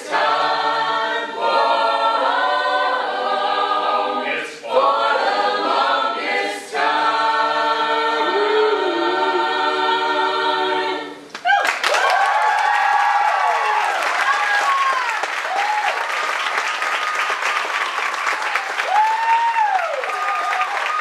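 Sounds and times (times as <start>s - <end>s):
a cappella group singing harmony: 0.0s - 11.3s.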